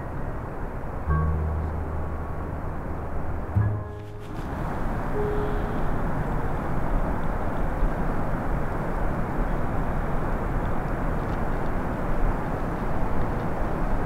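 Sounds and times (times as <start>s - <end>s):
steady rushing noise: 1.1s - 14.0s
brief held tone: 5.2s - 6.2s.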